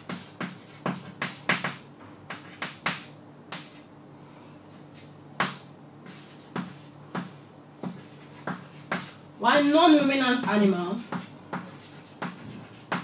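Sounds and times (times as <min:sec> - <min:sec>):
chalk tapping and scratching: 0:00.0 - 0:03.9, 0:04.9 - 0:09.2, 0:10.4 - 0:13.0.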